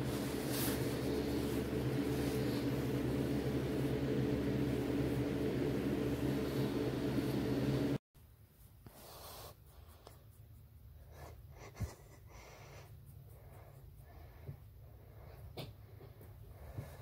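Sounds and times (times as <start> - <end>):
rustling on a plush pet bed: 0.0 - 7.3, 8.2 - 17.0
steady hum: 0.0 - 8.0.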